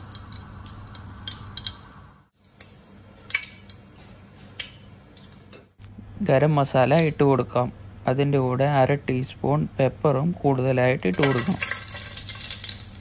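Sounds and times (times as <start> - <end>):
seeds sizzling and popping in oil: 0.0 - 5.7, 11.1 - 13.0.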